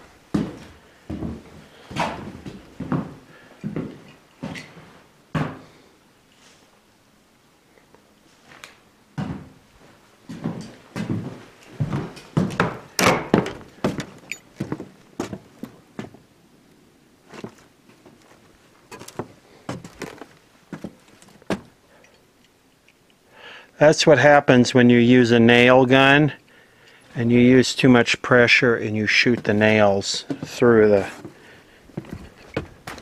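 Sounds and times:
door: 0:13.0 - 0:13.6
wooden thunks and knocks: 0:30.2 - 0:30.6.

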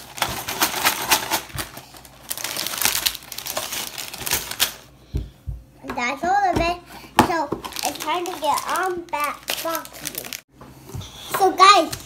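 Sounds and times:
plastic pieces rattling: 0:00.0 - 0:04.8
plastic bags crinkling: 0:00.0 - 0:04.9, 0:07.6 - 0:10.5.

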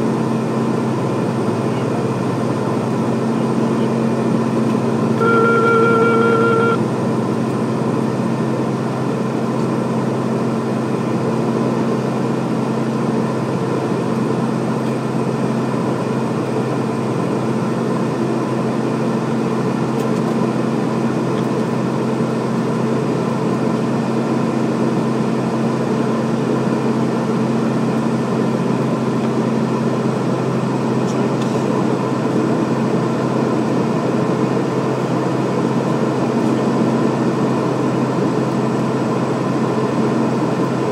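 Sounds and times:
turboprop cockpit drone: 0:00.0 - 0:40.9.

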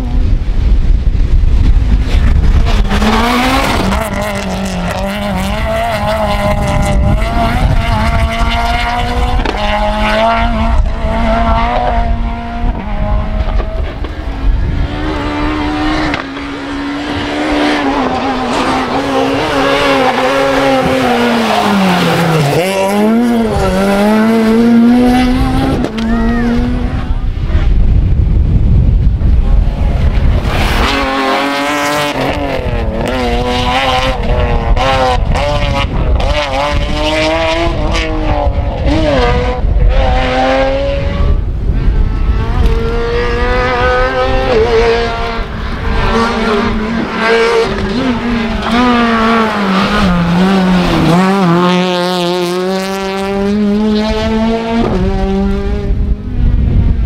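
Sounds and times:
rally car engines racing: 0:00.0 - 0:57.0.

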